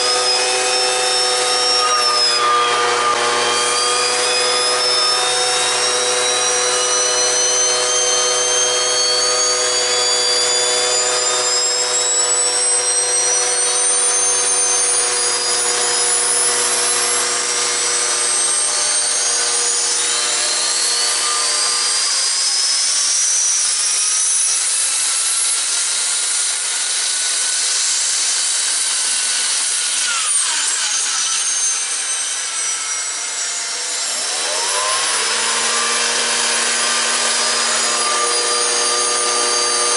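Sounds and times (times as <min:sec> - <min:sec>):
turbocharger whine: 0:00.0 - 0:25.2, 0:29.5 - 0:39.9
low drone: 0:04.4 - 0:22.2.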